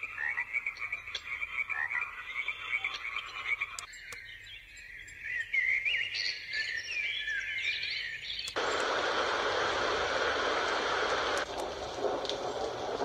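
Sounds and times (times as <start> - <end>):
steady white noise hiss: 8.6 - 13.0.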